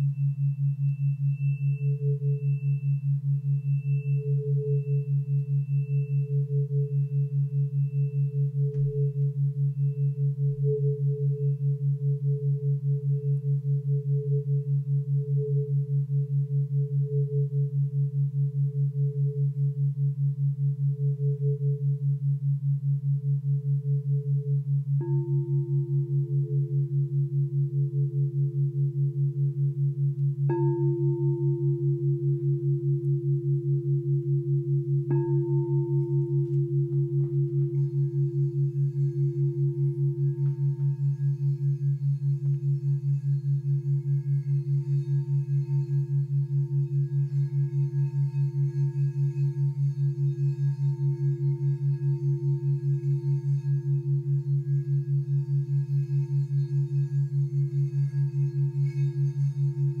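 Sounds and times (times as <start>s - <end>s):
singing bowl ringing: 0.0s - 60.0s
throbbing low tone: 35.8s - 38.4s.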